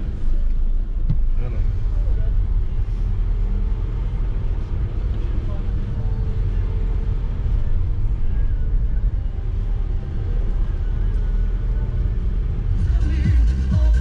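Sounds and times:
car road and engine rumble: 0:00.0 - 0:14.0
pop music on car radio: 0:06.6 - 0:14.0.

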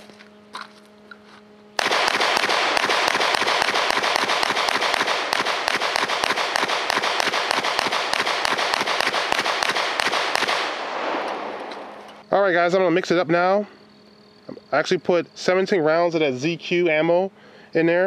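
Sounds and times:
rapid pistol shots: 0:01.8 - 0:12.1.

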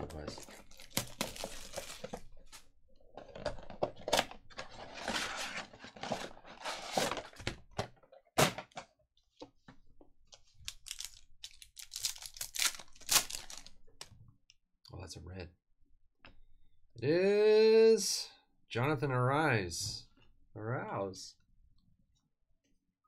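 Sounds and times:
foil pack crinkling: 0:00.1 - 0:02.2, 0:10.6 - 0:13.8
cardboard rustling and scraping: 0:01.3 - 0:07.6.

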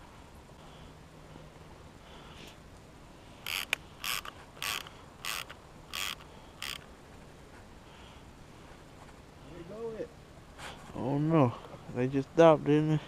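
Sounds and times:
fishing reel ratcheting: 0:03.4 - 0:06.9.

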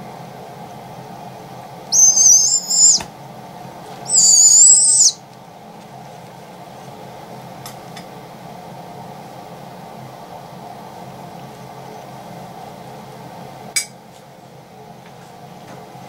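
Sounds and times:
owlet screeching calls: 0:01.9 - 0:03.0, 0:04.0 - 0:05.2.

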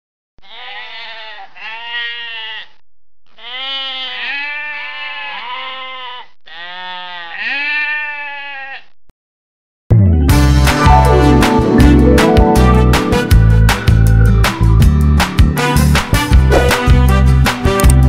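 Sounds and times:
sheep bleating: 0:00.4 - 0:09.0.

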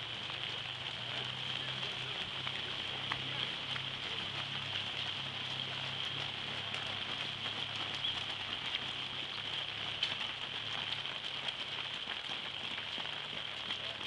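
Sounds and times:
raindrops tapping on umbrella: 0:00.0 - 0:14.0
steady rain falling: 0:00.0 - 0:14.0.

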